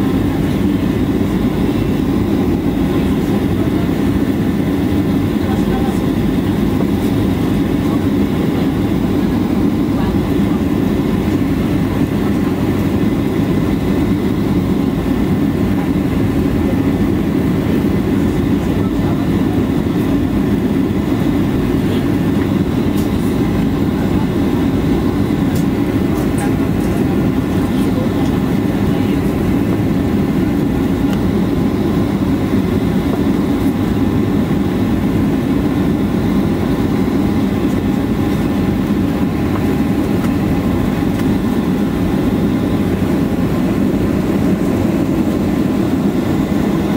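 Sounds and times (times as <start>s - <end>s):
aircraft cabin engine rumble: 0.0s - 46.9s
faint steady whines: 0.0s - 46.9s.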